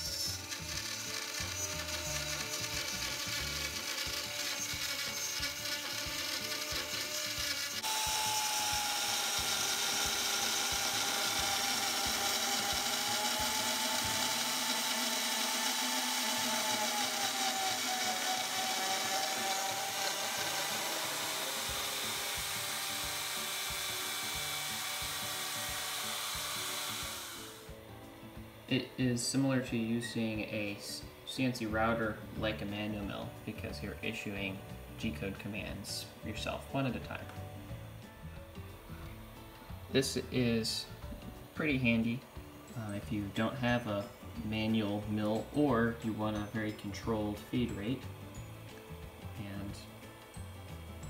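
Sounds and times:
router cutting metal: 0.0s - 27.7s.

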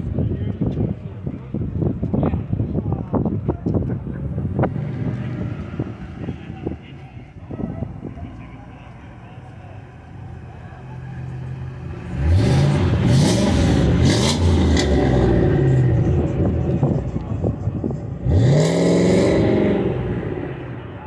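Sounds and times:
car engine revving: 4.1s - 21.0s.

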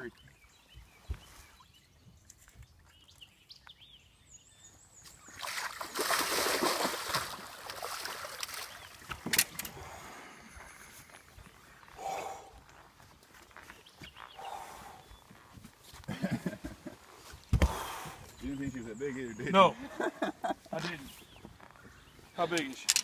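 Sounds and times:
fish splashing in water: 5.3s - 9.0s.

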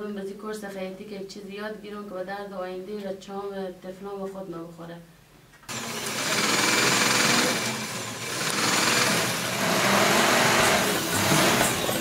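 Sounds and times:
sewing machines chattering: 5.7s - 12.0s.

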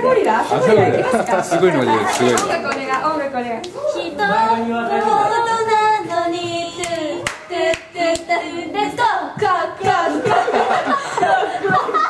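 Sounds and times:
women singing together: 2.6s - 12.0s
hand claps: 6.8s - 8.3s.

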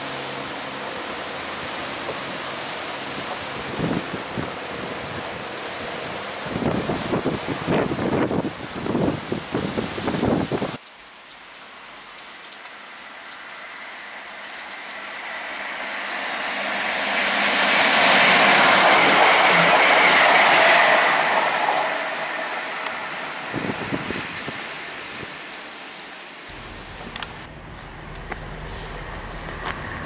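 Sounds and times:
diesel train running past: 0.0s - 8.8s, 14.0s - 24.6s, 26.5s - 30.0s
rain hiss: 0.0s - 30.0s.

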